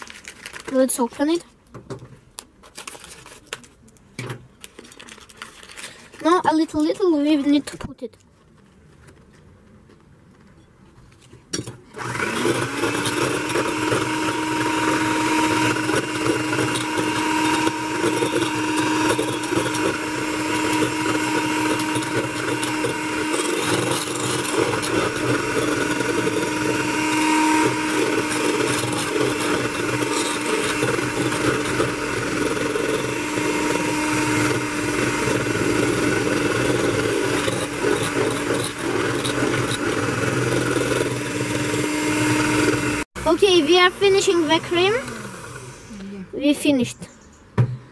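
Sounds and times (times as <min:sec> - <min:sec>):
electric hand mixer whisking: 0:12.0 - 0:46.0.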